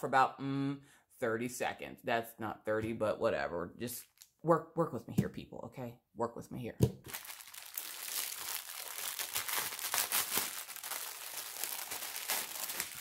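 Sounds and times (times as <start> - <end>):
plastic packaging crinkling: 7.0 - 13.0.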